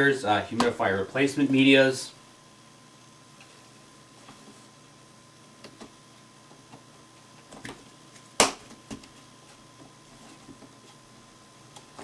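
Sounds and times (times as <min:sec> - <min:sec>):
loud sharp plastic snap: 0:08.4 - 0:09.1.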